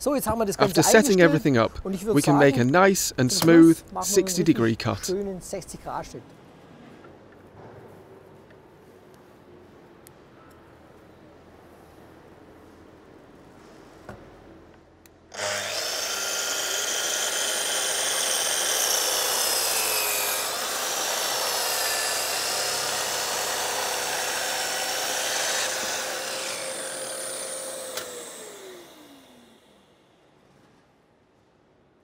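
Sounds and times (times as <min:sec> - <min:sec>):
saw blade cutting wood: 0:15.3 - 0:29.6
mitre saw motor whine: 0:15.3 - 0:30.0.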